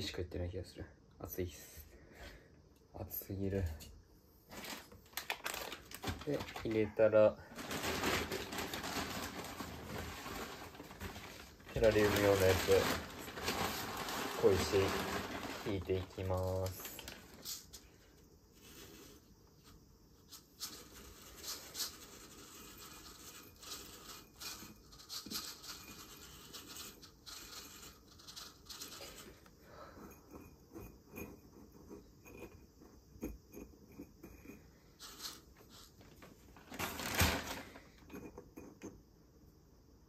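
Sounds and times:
pebbles scraping against glass jar: 4.5s - 17.9s, 20.3s - 38.9s.

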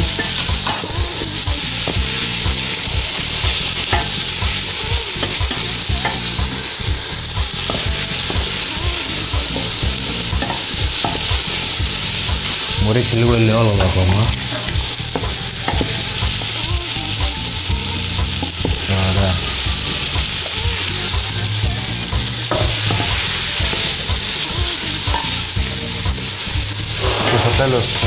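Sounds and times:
vegetables sizzling in oil: 0.0s - 28.0s
wooden spoon scraping a pot: 26.9s - 28.0s.

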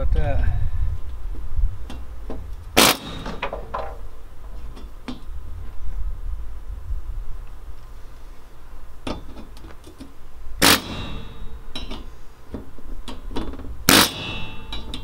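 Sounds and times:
pneumatic air tool bursts: 2.8s - 3.4s, 10.6s - 11.6s, 13.9s - 14.8s
metal panel ringing: 2.8s - 5.2s, 10.6s - 12.1s, 13.0s - 15.0s.

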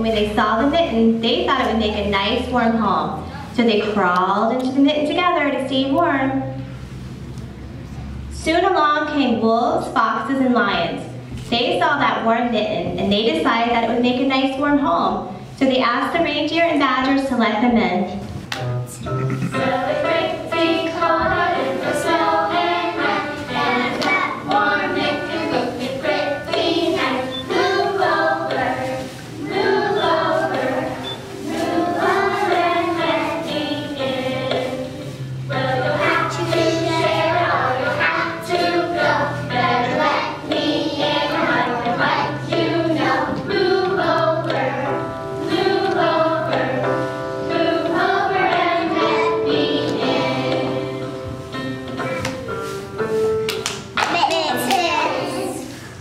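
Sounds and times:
musical accompaniment: 18.1s - 56.0s
children singing: 19.2s - 51.2s.

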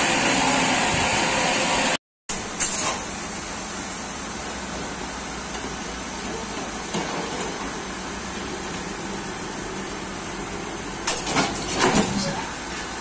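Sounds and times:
sawmill machinery running: 0.0s - 2.0s.

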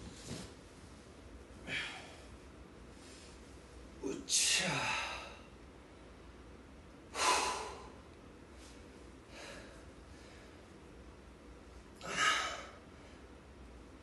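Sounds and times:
faint breathing: 7.1s - 8.0s, 8.6s - 10.7s
man exhaling forcefully: 7.2s - 7.9s, 12.0s - 12.8s.

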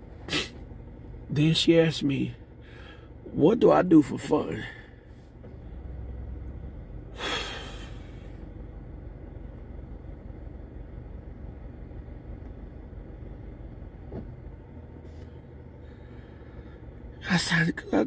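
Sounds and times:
low rumble inside car: 0.0s - 18.0s
long breathy sigh: 7.2s - 8.4s.

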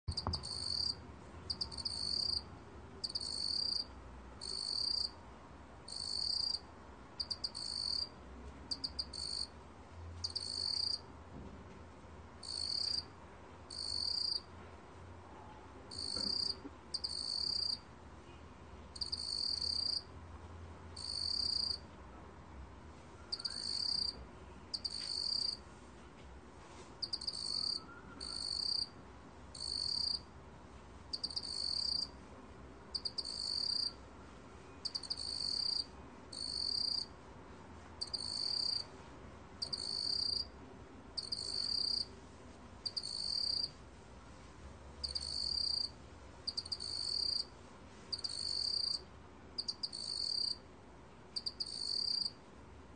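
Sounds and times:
cricket trilling chirp: 0.1s - 2.4s, 3.0s - 5.1s, 5.9s - 6.6s, 7.2s - 8.1s, 8.7s - 9.5s, 10.2s - 11.0s, 12.4s - 13.0s, 13.7s - 14.4s, 15.9s - 17.8s, 19.0s - 20.0s, 21.0s - 21.8s, 23.3s - 25.6s, 27.0s - 28.9s, 29.6s - 30.2s, 31.1s - 32.1s, 33.0s - 34.0s, 34.8s - 37.1s, 38.0s - 38.8s, 39.6s - 40.5s, 41.2s - 42.1s, 42.9s - 43.7s, 45.1s - 45.9s, 46.5s - 47.5s, 48.1s - 49.0s, 49.6s - 50.6s, 51.4s - 52.4s.

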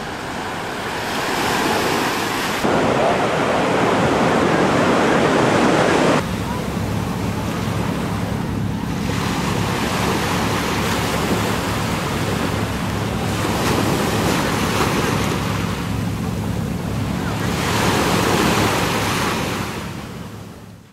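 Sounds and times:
waves washing onto beach: 0.0s - 20.9s
wind on microphone: 2.5s - 16.7s.

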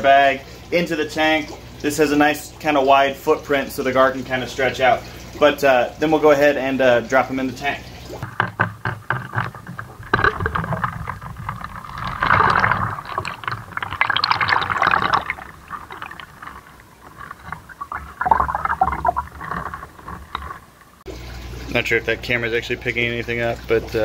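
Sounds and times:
water splashing and sloshing: 0.0s - 24.0s.

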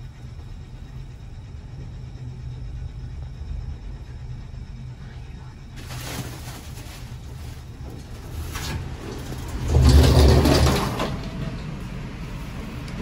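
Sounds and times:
elevator doors sliding: 5.9s - 13.0s.

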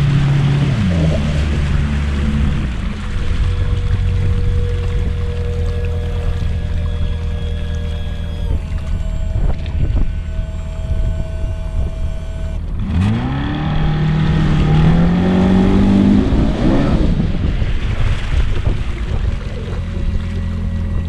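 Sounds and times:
held musical tones: 0.0s - 17.2s
outboard motor throttling up: 0.0s - 21.0s.

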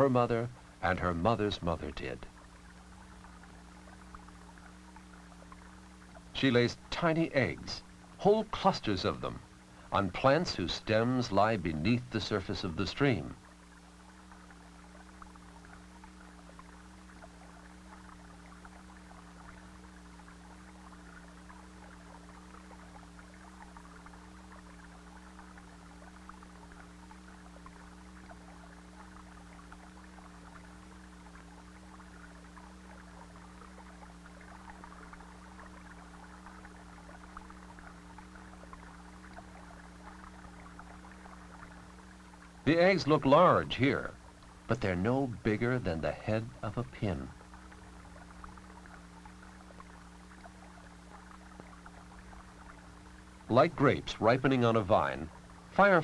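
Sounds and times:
low wavering hum: 0.0s - 56.0s.

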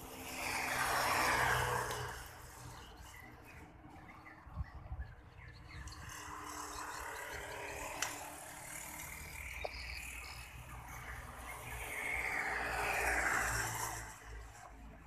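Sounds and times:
bird or insect chirping: 2.6s - 12.6s.

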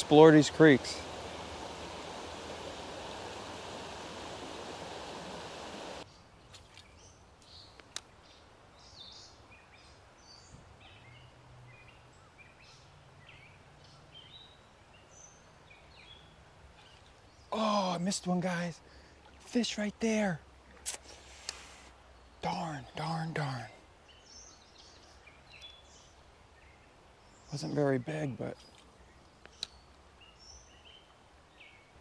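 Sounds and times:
steady rushing hiss: 0.0s - 6.0s, 20.8s - 22.0s
small birds chirping: 0.0s - 19.9s, 21.0s - 32.0s.

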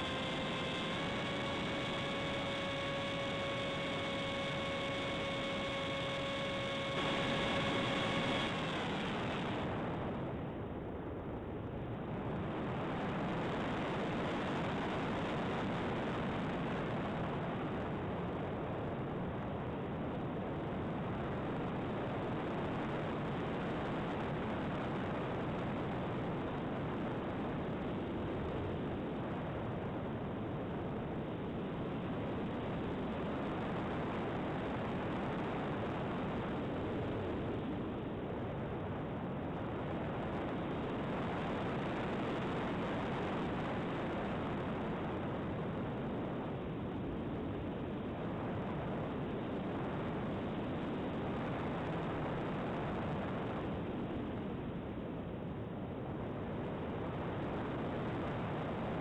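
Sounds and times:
electric motor propeller whine: 0.0s - 10.2s
wind rush over airframe: 0.0s - 59.0s.

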